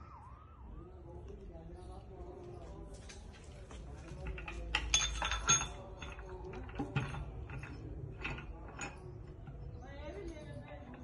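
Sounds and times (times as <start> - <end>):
ringing metal clank: 4.3 - 9.7.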